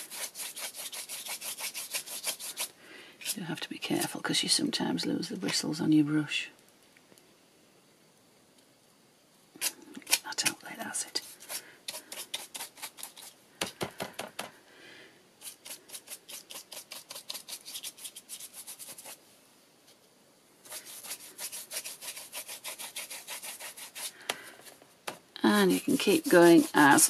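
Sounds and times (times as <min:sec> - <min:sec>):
stiff brush scrubbing card: 0:00.0 - 0:03.4, 0:09.6 - 0:13.4, 0:15.4 - 0:19.2, 0:20.7 - 0:24.8, 0:25.5 - 0:27.0.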